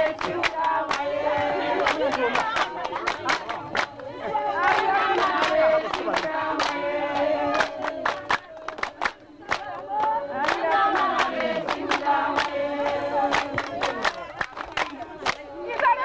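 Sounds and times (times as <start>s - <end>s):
hand claps: 0.0s - 16.0s
women singing in unison: 0.0s - 16.0s.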